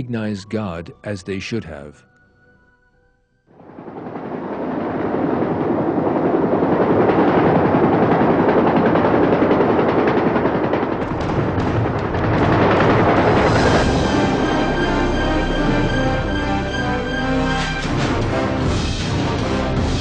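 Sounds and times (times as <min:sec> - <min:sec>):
dramatic music: 0:00.0 - 0:02.6, 0:09.8 - 0:20.0
dense rapid gunfire: 0:03.5 - 0:15.0.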